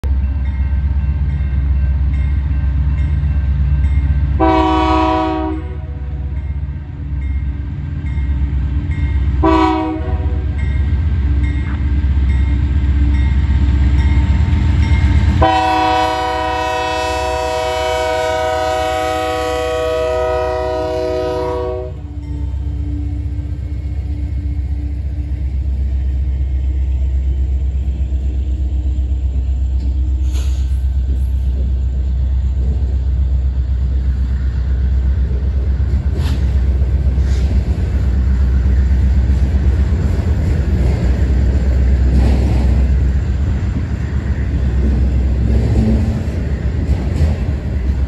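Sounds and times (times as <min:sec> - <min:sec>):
diesel locomotive rumble: 0:00.0 - 0:48.0
locomotive air horn: 0:04.4 - 0:06.1, 0:09.4 - 0:10.4, 0:15.4 - 0:22.1.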